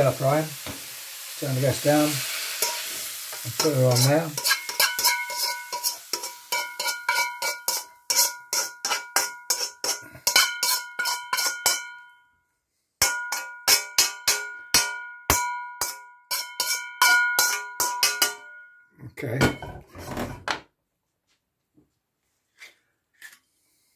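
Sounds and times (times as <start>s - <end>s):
metal utensil knocking in wok: 13.0s - 18.6s.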